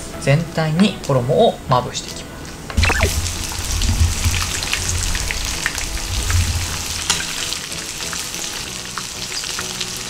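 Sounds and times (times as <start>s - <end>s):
chicken sizzling in oil: 2.8s - 10.0s.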